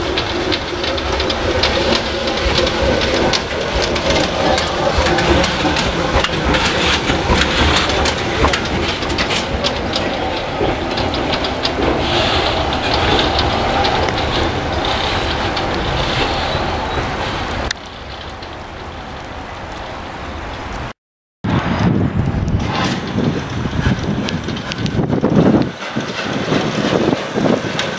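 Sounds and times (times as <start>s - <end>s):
steam locomotive hissing: 0.0s - 19.6s, 22.7s - 27.9s.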